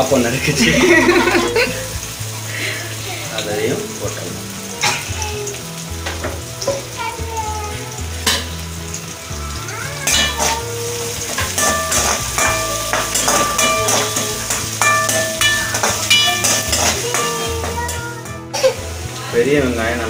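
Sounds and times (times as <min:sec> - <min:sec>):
background music: 0:00.0 - 0:20.0
food sizzling in hot oil: 0:00.0 - 0:20.0
metal spoon scraping pan: 0:11.2 - 0:18.4.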